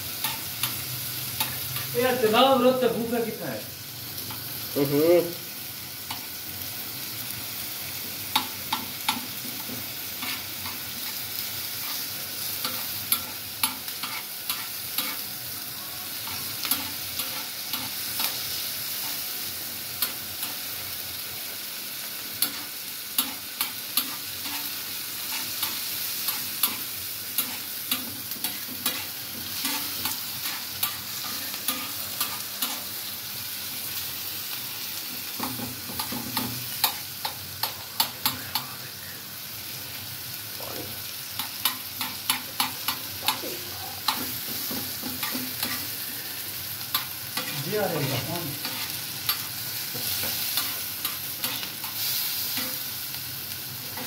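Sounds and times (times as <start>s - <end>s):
vegetables sizzling in oil: 0.0s - 54.0s
knife tapping and scraping griddle: 8.3s - 11.2s, 12.6s - 15.2s, 16.3s - 18.4s, 22.4s - 24.7s, 25.3s - 32.8s, 35.4s - 38.7s, 41.4s - 45.9s, 46.9s - 52.9s.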